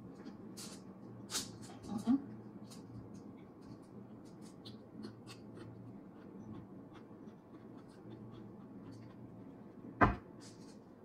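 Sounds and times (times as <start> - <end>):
loud thump: 10.0 - 10.3.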